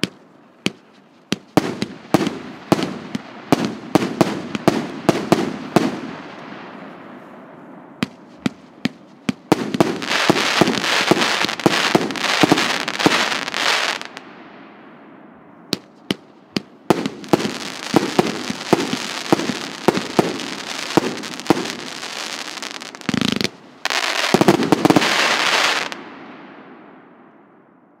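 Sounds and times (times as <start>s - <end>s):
scattered fireworks pops: 0.0s - 6.0s, 8.0s - 13.3s, 15.7s - 25.9s
fireworks crackling: 0.0s - 6.5s, 8.0s - 14.2s, 15.7s - 26.0s.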